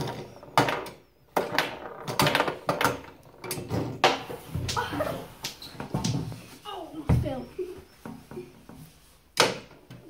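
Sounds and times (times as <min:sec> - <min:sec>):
plastic foosball clacks and knocks: 0:00.0 - 0:04.8, 0:09.4 - 0:10.0.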